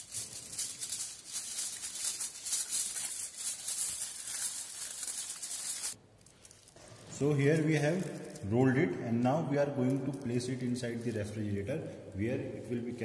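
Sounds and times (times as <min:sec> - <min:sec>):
aluminium foil crinkling: 0:00.0 - 0:08.6, 0:09.8 - 0:11.6.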